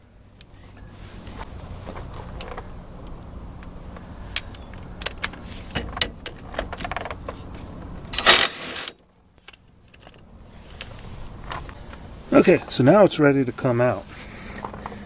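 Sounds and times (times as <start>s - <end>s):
power ratchet whirring: 8.2s - 9.0s.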